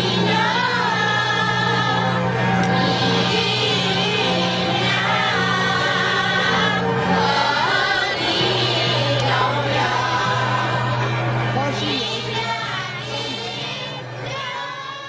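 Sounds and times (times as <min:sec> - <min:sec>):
women singing in chorus: 0:00.0 - 0:15.0.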